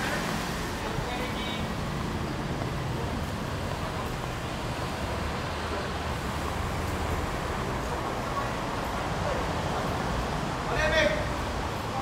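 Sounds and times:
city traffic rumble: 0.0 - 12.0.

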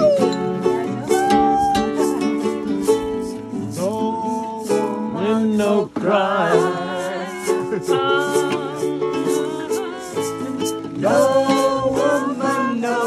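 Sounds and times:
strummed acoustic string instrument: 0.0 - 13.0
voices singing: 0.0 - 13.0.

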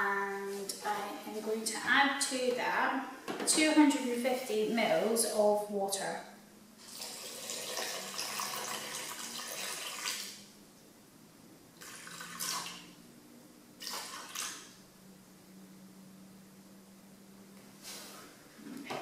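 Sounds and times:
water pouring into saucepan: 6.8 - 10.4, 11.8 - 12.9, 13.8 - 14.6
water splashes: 13.8 - 14.7.

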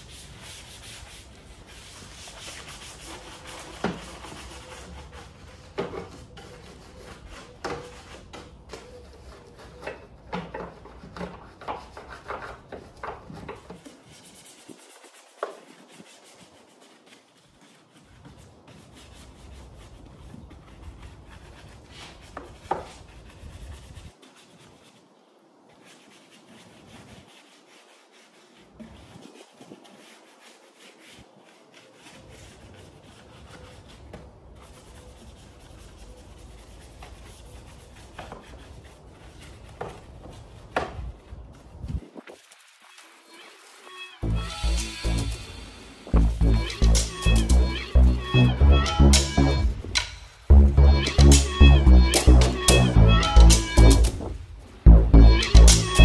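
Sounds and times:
brush scrubbing foam: 0.0 - 56.0.

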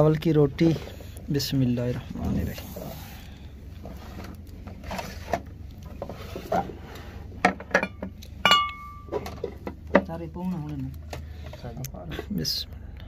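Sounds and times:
tableware clinking and knocking: 7.4 - 10.0
dish ringing clink: 7.8 - 9.2.

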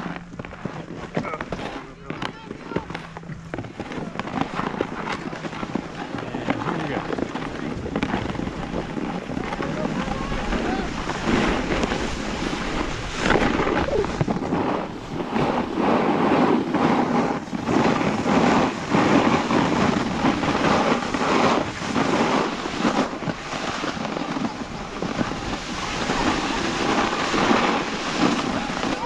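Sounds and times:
snowboard scraping over snow: 0.0 - 29.0
wind buffeting microphone: 0.0 - 29.0.

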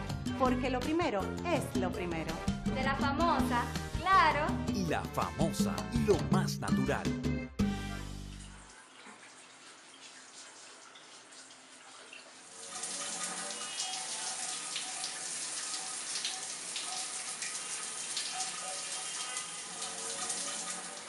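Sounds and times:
shower water spraying: 8.1 - 21.0.

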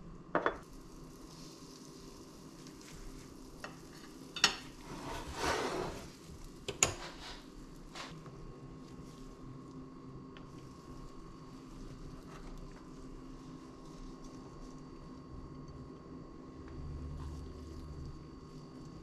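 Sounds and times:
food sizzling in a pan: 0.6 - 9.5.

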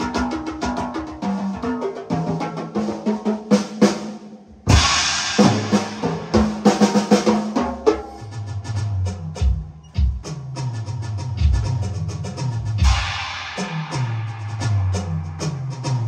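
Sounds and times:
music with drum kit: 0.0 - 16.0
cymbal crash: 4.6 - 8.3, 12.8 - 16.0.

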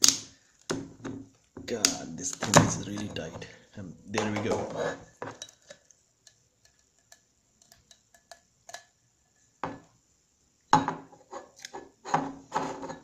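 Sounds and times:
rustling scrape: 4.5 - 5.3, 11.2 - 13.0.

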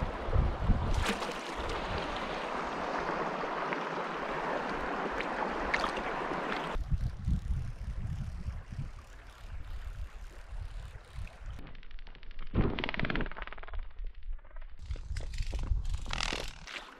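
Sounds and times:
creek water rushing: 0.0 - 6.8
wind rumbling on microphone: 0.0 - 11.7, 14.3 - 16.6.

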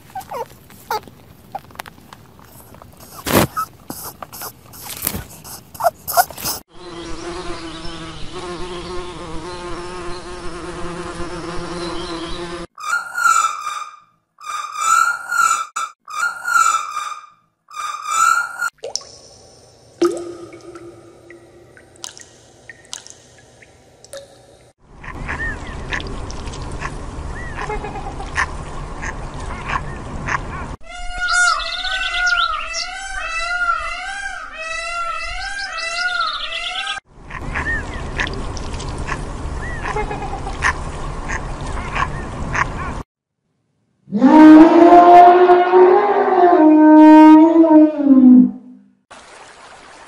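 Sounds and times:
bird loud repeated calls: 0.1 - 1.6, 2.5 - 6.6, 12.8 - 18.8, 31.0 - 38.3
bumblebee buzzing in flight: 3.0 - 12.7.

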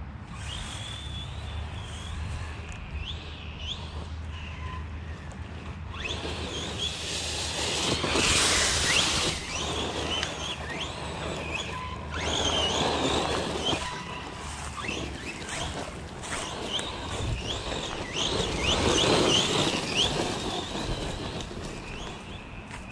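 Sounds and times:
electric motor whining: 0.2 - 22.9
rushing noise bursts: 5.8 - 22.9.

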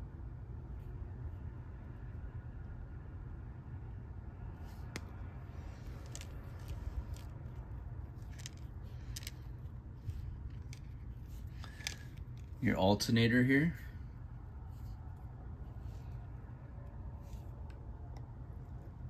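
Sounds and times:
low steady rumble: 0.0 - 19.0
small plastic parts clicking on table: 8.2 - 9.5, 10.5 - 12.5.

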